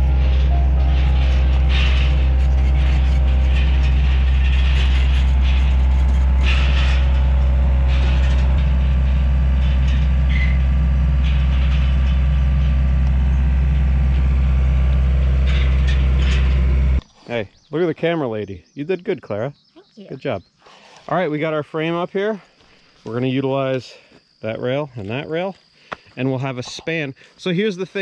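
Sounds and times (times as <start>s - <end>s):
heavy machine engine running: 0.0s - 17.0s
metallic clanks and squeaks: 0.0s - 17.0s.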